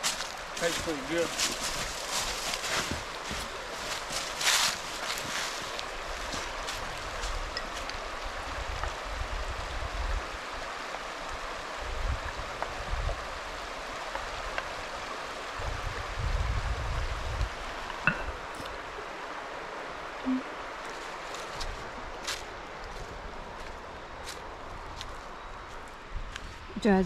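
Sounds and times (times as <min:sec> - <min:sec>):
outdoor background hiss: 0:00.0 - 0:27.0
wind buffeting microphone: 0:15.5 - 0:18.6.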